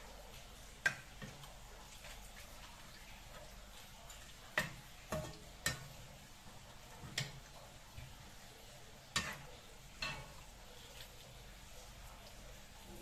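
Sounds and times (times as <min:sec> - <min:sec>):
metal spatula knocking on frying pan: 0:04.6 - 0:05.9.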